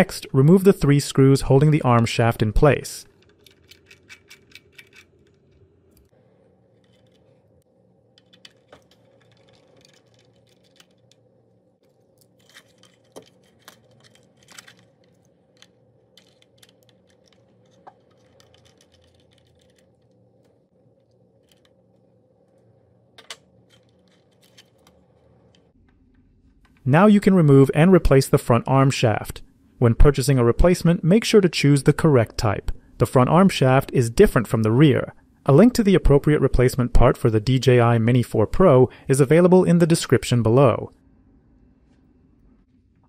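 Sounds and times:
small clicks of parts being handled: 3.1s - 6.1s, 8.1s - 22.1s.

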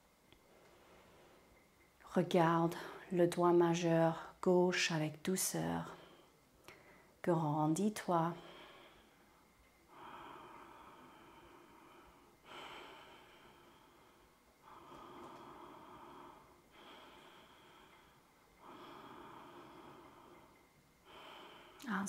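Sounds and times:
slow breathing in and out: 0.3s - 1.8s, 5.8s - 7.2s, 8.4s - 22.0s.

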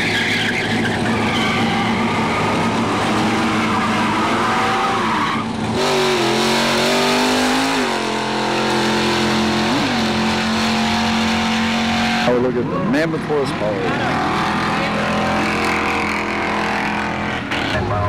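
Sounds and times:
tyres squealing: 0.0s - 6.2s
car engine running: 0.0s - 18.0s
engine at high revs: 0.0s - 18.0s.

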